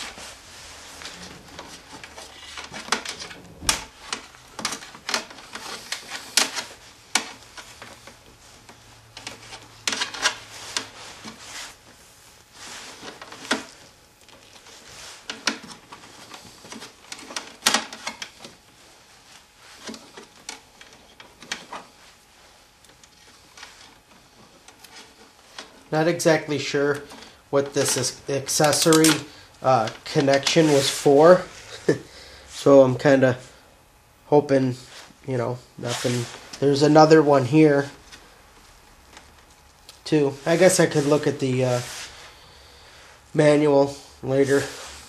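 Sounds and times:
clicks and rustles of wires: 0:00.0 - 0:31.9, 0:35.8 - 0:42.3.

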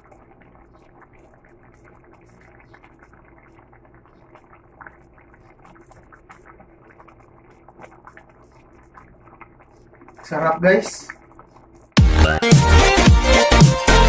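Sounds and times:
wooden spoon stirring: 0:00.0 - 0:12.0
broth simmering with faint bubbling: 0:00.0 - 0:14.0.

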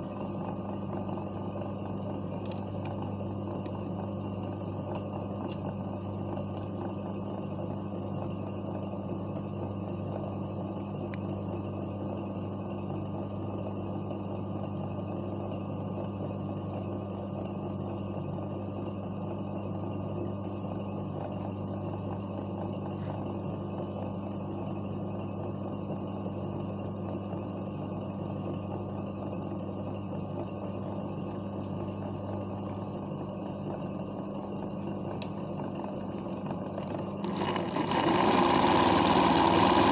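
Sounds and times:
sewing machine motor humming: 0:37.0 - 0:39.9.

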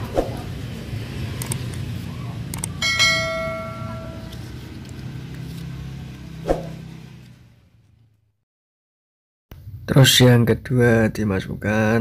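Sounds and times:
quick clicks: 0:02.5 - 0:02.8
bell ding: 0:02.8 - 0:04.3.

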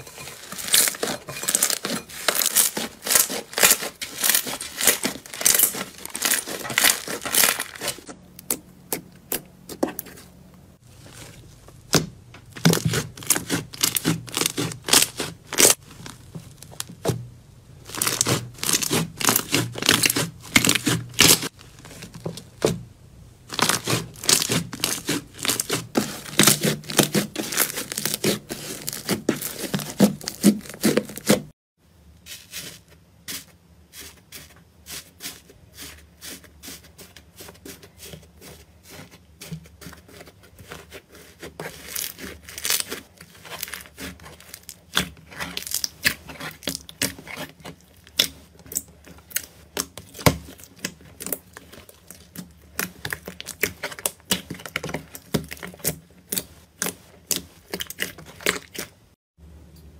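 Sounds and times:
slime crackling and tearing: 0:00.4 - 0:09.4, 0:10.9 - 0:17.2, 0:17.8 - 0:22.7, 0:23.4 - 0:31.5, 0:41.1 - 0:59.0.

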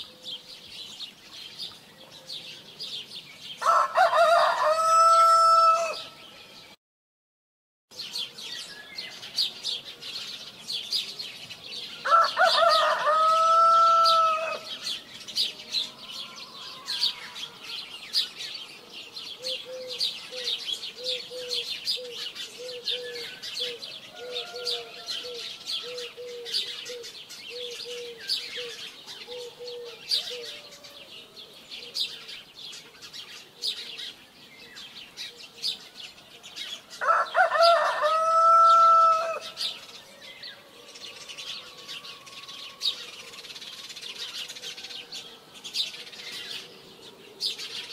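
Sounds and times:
small birds chirping: 0:00.0 - 0:04.4, 0:07.9 - 0:47.9
rooster crowing: 0:03.6 - 0:06.2, 0:12.0 - 0:14.8, 0:15.8 - 0:17.8, 0:23.9 - 0:26.2, 0:37.0 - 0:39.6.

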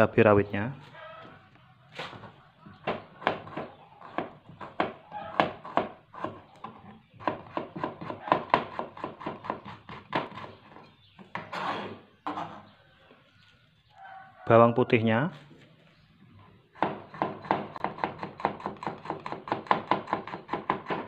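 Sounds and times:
knife scraping cutting board: 0:09.1 - 0:12.7.

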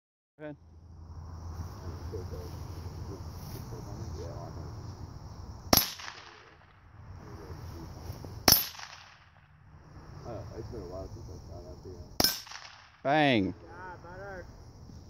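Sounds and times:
gunshots: 0:05.7 - 0:06.8, 0:08.4 - 0:09.5, 0:12.2 - 0:13.0.

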